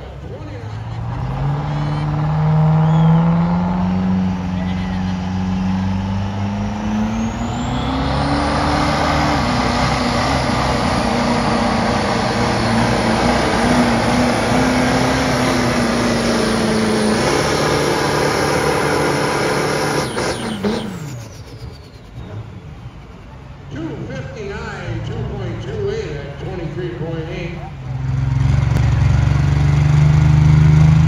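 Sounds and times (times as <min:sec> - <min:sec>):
diesel truck engine revving: 0:00.0 - 0:31.0
high whistle: 0:06.8 - 0:08.5, 0:19.9 - 0:23.1.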